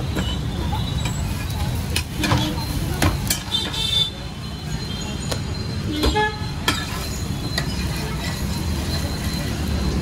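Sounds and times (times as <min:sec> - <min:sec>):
metal spatula scraping on griddle: 0:06.3 - 0:09.6.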